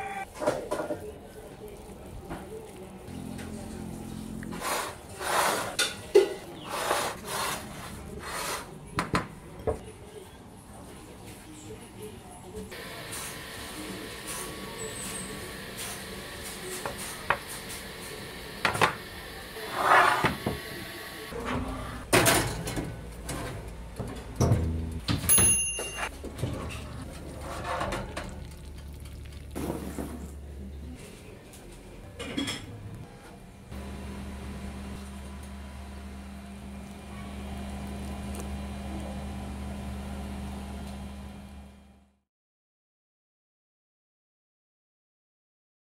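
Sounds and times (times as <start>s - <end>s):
low machine hum: 3.1s - 4.6s, 33.7s - 42.2s
pan scraping: 3.5s - 8.7s, 19.6s - 20.5s
oven low hum: 12.8s - 30.6s, 33.7s - 42.2s.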